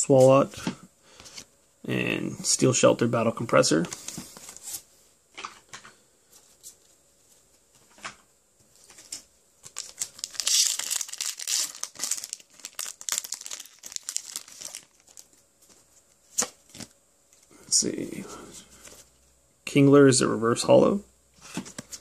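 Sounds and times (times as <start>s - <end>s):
foil wrapper crinkling and tearing: 9.6s - 15.4s.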